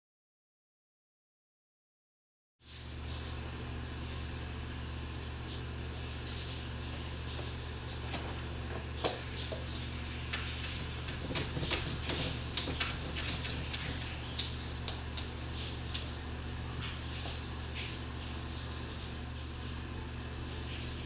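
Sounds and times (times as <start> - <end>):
steady low hum: 2.7 - 21.0
cat paws clicking on wood floor: 7.3 - 16.2.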